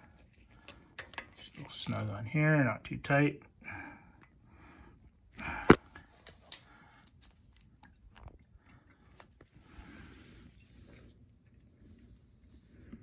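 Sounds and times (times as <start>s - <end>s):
gloves and hose rustling: 0.0s - 2.2s, 8.6s - 13.0s.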